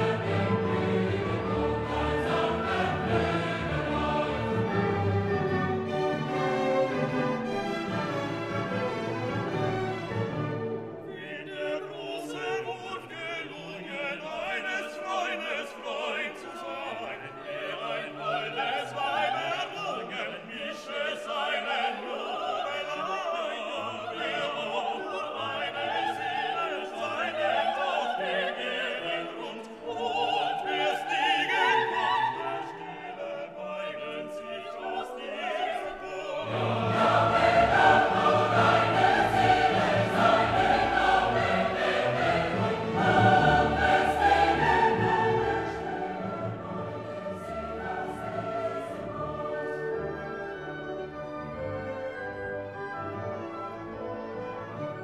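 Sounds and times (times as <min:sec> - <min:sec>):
choral singing with orchestra: 0:00.0 - 0:55.0.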